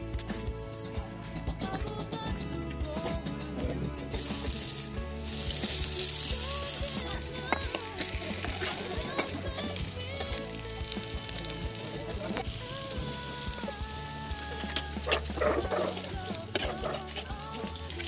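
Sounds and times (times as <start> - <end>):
eggplant slices sizzling in oil: 4.2 - 18.0.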